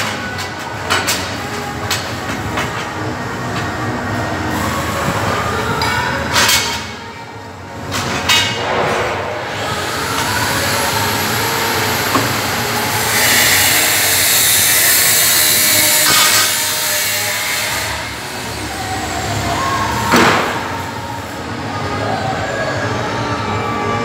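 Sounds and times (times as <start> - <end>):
power tool whining on steel: 9.5 - 20.0.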